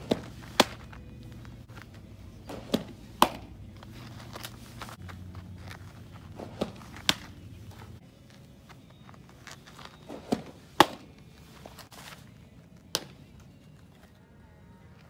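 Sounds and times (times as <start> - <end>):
ball popping into mitt: 0.0 - 3.6, 6.3 - 7.8, 9.4 - 11.8, 12.8 - 13.3.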